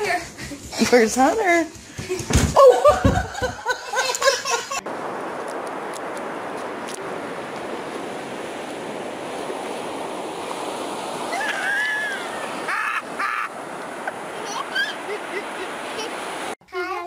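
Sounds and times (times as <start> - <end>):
surf washing on shore: 2.7 - 16.6
wind on microphone: 4.8 - 16.5
child's voice: 14.4 - 15.0, 16.6 - 17.0.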